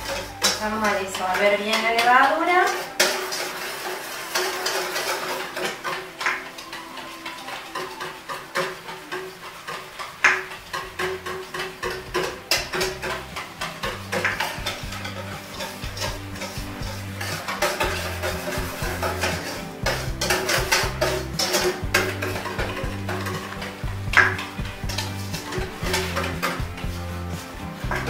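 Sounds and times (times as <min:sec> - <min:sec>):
background music with bass: 0:00.0 - 0:02.2, 0:10.2 - 0:28.0
spoon scraping metal bowl: 0:00.0 - 0:28.0.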